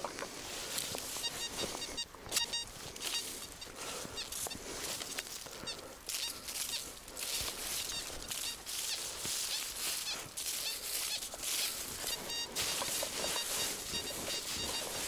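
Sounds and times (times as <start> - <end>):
footsteps crunching in snow: 0.0 - 15.0
short high-pitched chirping tones: 1.2 - 4.4, 7.8 - 15.0.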